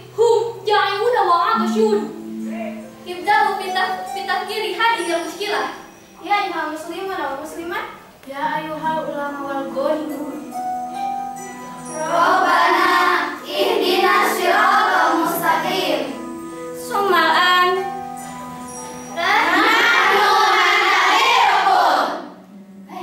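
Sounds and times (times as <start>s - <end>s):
girls singing in chorus: 11.9s - 16.2s, 19.2s - 22.4s.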